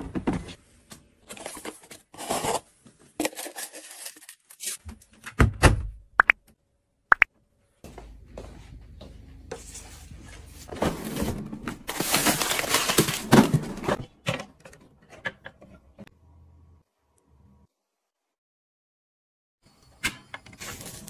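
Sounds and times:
frozen food rustling in drawer: 1.3s - 4.8s, 10.6s - 14.1s.

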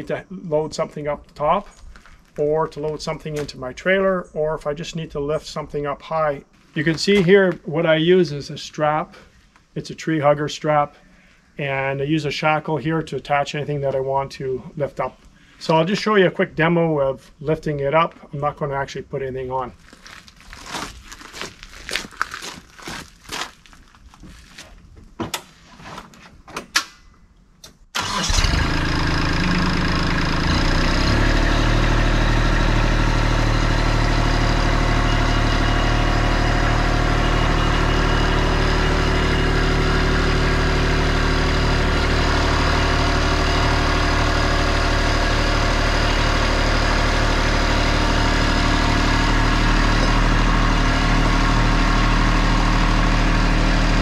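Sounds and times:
tractor diesel engine running: 28.0s - 54.0s.

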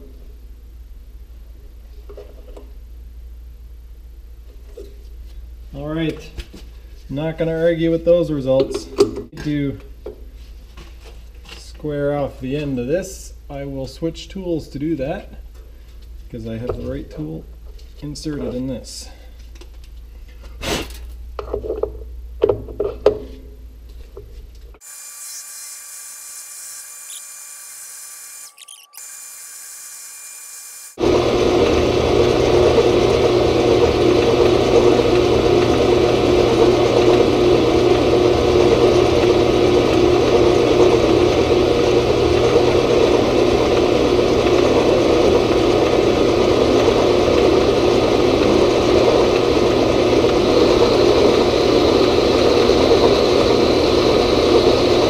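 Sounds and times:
metal lathe running: 24.9s - 55.0s.

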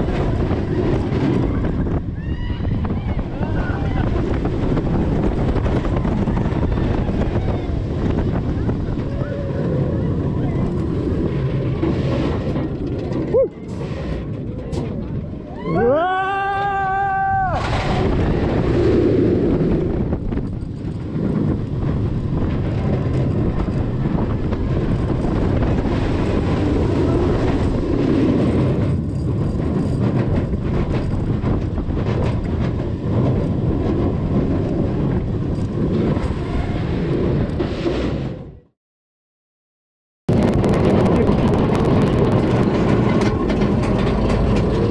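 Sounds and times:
roller coaster rumbling on track: 0.0s - 38.7s, 40.3s - 44.9s
wind rush over microphone: 0.0s - 38.7s, 40.3s - 44.9s
person screaming: 15.6s - 17.6s.

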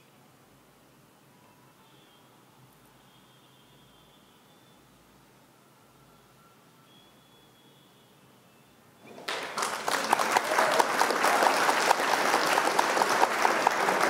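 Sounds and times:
recorded applause: 9.1s - 14.0s.

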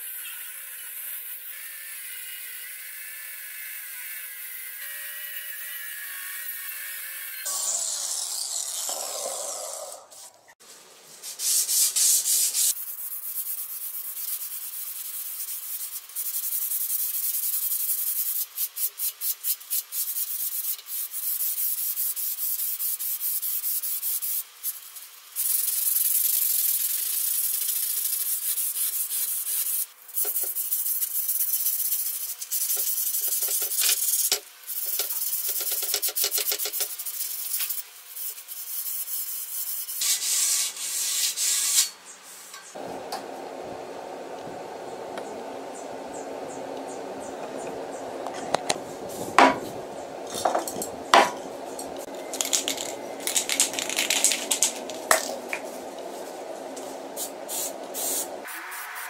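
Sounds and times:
sandpaper rubbing on steel: 11.2s - 42.5s.

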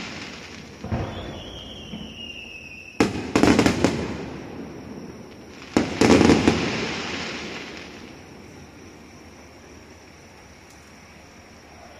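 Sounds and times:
firework booms: 0.0s - 9.1s
firework crackles: 0.0s - 11.8s.

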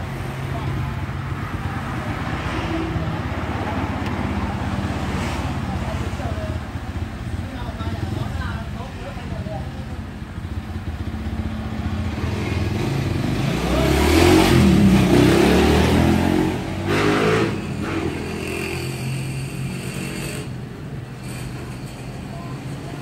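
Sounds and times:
vehicle engine passing: 11.6s - 18.4s.

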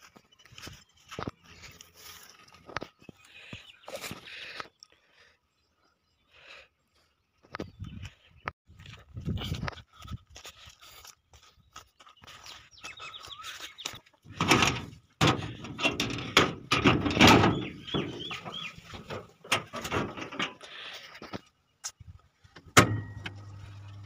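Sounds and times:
metal door rattling open: 14.3s - 20.6s
low electrical hum: 22.8s - 24.0s.

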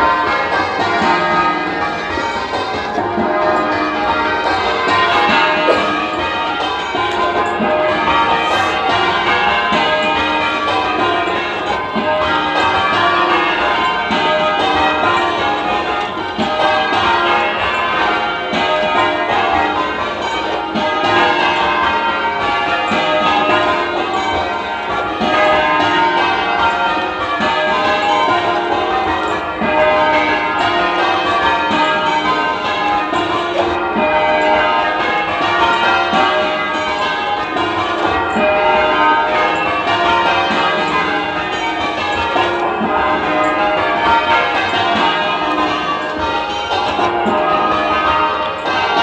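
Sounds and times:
church bells change ringing: 0.0s - 49.0s.

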